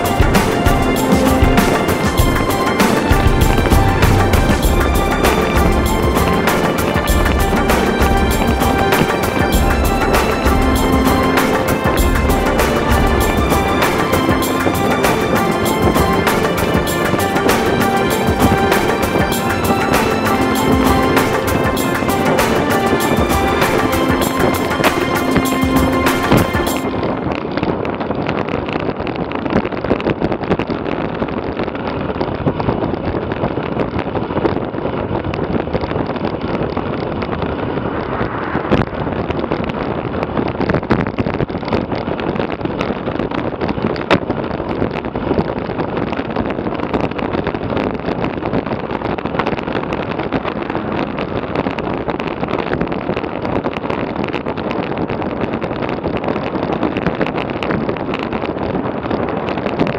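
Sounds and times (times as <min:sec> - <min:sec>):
wind rushing over microphone: 0:00.0 - 0:59.9.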